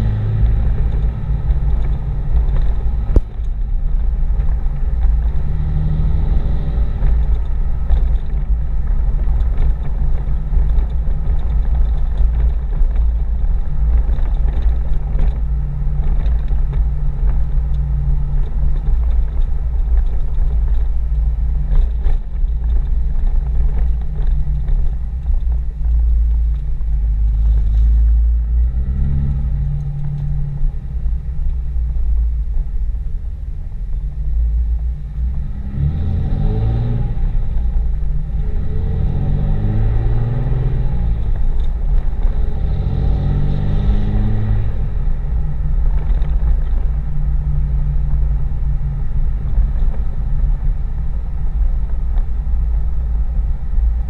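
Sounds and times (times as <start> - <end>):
diesel truck engine droning: 0.0 - 54.0.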